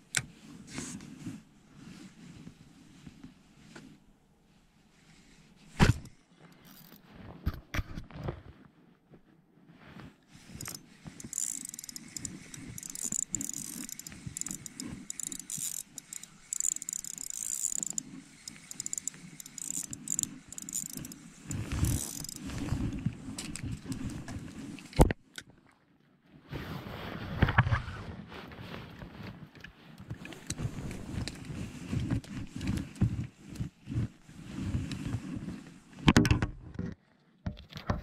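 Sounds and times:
fishing reel whirring: 0:10.6 - 0:22.5.

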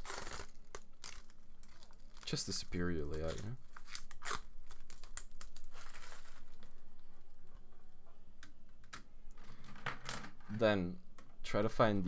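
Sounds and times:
plastic film peeling and crinkling: 0:00.0 - 0:06.8.

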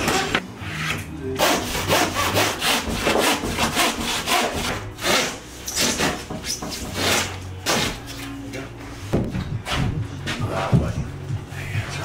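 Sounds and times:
handsaw cutting plasterboard: 0:00.0 - 0:08.0.

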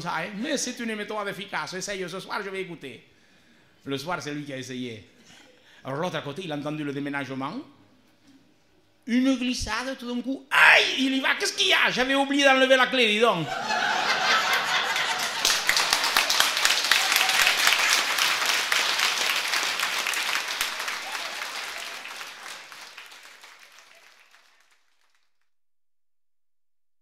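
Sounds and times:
audience applauding: 0:14.0 - 0:25.5.

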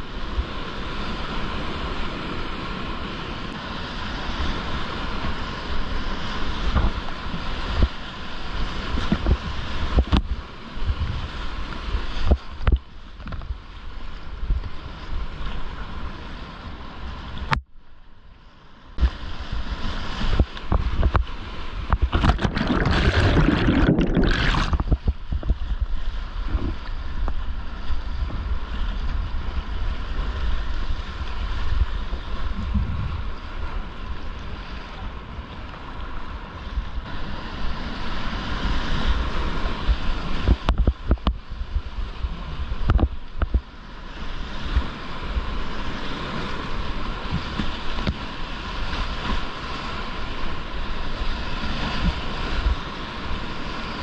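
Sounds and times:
wind buffeting the microphone: 0:04.2 - 0:13.7, 0:19.0 - 0:54.0
river rapid rushing: 0:21.8 - 0:24.9.

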